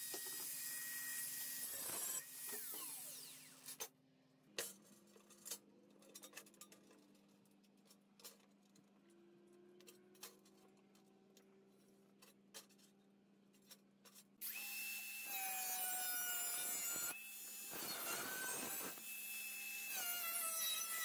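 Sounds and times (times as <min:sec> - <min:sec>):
angle grinder whining: 0:14.4 - 0:21.0
grinding disc cutting steel: 0:14.4 - 0:21.0.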